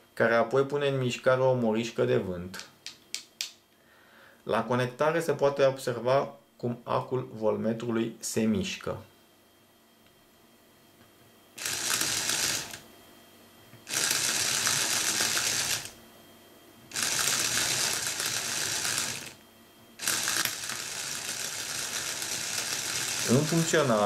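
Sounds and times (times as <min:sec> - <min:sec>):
small electric motor whirring: 0:11.6 - 0:12.8, 0:13.8 - 0:16.0, 0:16.9 - 0:19.4, 0:20.0 - 0:24.0.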